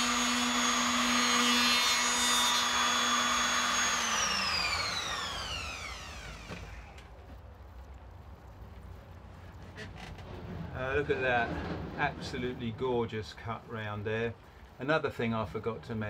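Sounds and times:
router whining and spinning down: 0.0 - 7.1.

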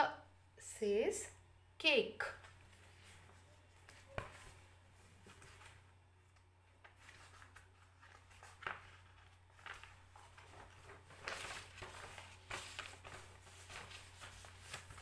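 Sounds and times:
low steady hum: 0.0 - 15.0
rustling: 6.8 - 15.0.

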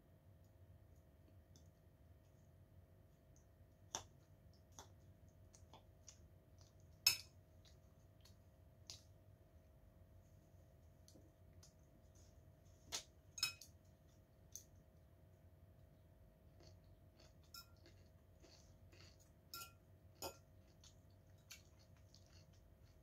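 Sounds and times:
faint steady hum: 0.0 - 23.0
fork clinking against ceramic bowl: 7.1 - 7.3, 13.4 - 13.7, 17.4 - 17.9, 19.5 - 20.4.

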